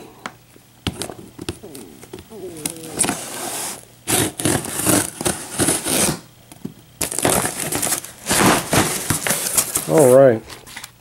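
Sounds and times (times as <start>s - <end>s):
tape and cardboard tearing: 2.6s - 6.3s, 7.0s - 10.2s
scissors slitting packing tape: 4.1s - 6.2s.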